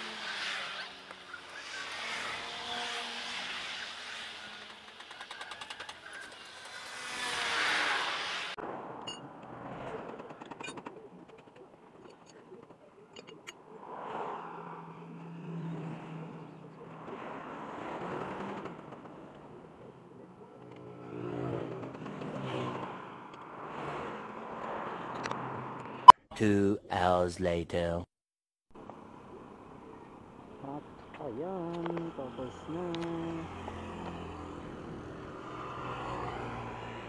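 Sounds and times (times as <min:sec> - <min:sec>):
vehicles passing by: 0:00.0 - 0:26.1, 0:28.8 - 0:37.0.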